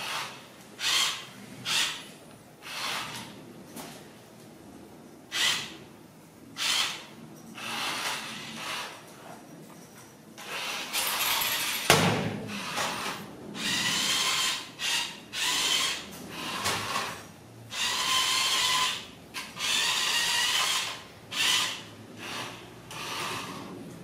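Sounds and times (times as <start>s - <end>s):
toy car motor whirring: 0.0s - 2.0s, 2.6s - 3.4s, 5.3s - 5.8s, 6.6s - 9.1s, 10.4s - 11.9s, 12.5s - 23.8s.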